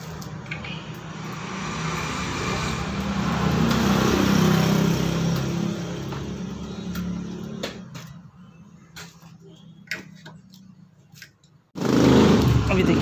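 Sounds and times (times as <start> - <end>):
passing engine hum: 0.6 - 8.8.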